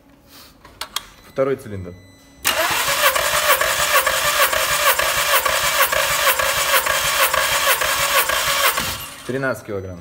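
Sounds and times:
engine cranking on starter motor: 2.4 - 9.4.

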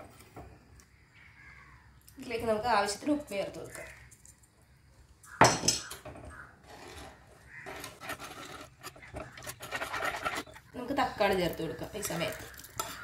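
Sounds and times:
steel spoon stirring and scraping: 6.6 - 13.0.

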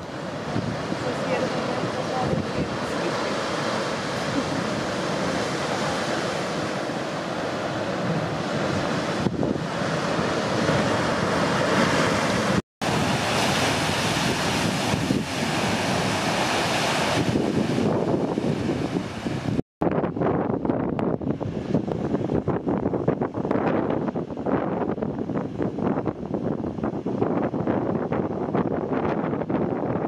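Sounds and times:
ocean surf breaking: 0.0 - 19.6
wind on microphone: 0.0 - 30.0.

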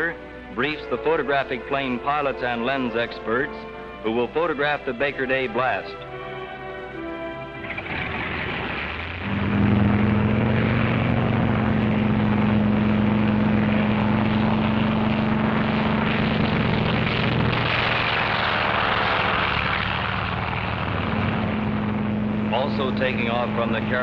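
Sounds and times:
propeller aircraft engines droning: 0.0 - 24.0
rushing hiss: 16.1 - 21.7.

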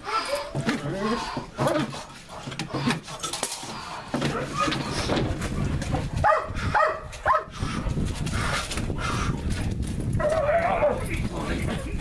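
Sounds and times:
dog barking: 6.2 - 7.5.

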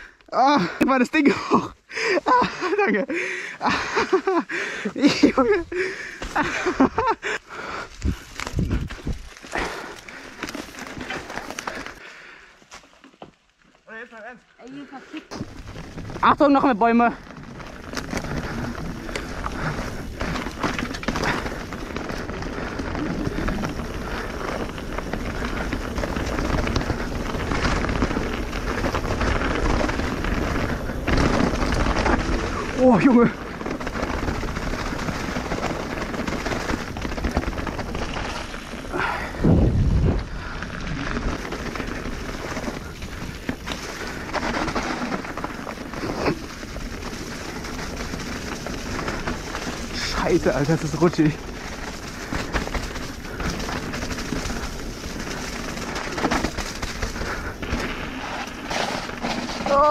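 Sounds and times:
bike clicks and rattles: 2.2 - 13.7, 14.7 - 59.9
wind rush on microphone: 8.0 - 9.3, 38.9 - 44.4
tyres hissing over wet leaves: 18.0 - 36.9, 37.8 - 39.4, 40.2 - 59.9.

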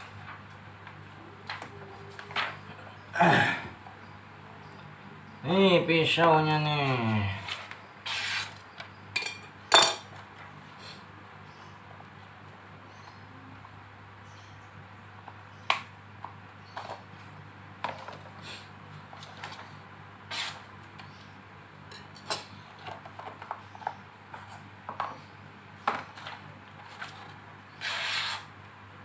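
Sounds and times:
paper rustling: 0.0 - 2.8.

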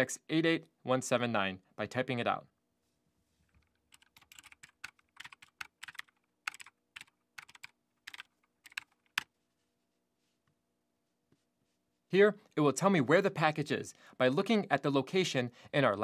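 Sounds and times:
typing on computer keyboard: 3.6 - 9.3.

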